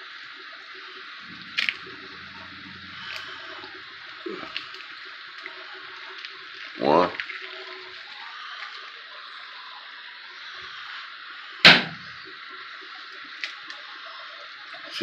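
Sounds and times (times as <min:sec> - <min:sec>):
food sizzling in a frying pan: 0:00.0 - 0:15.0
sharp knock over pan: 0:11.7 - 0:12.1.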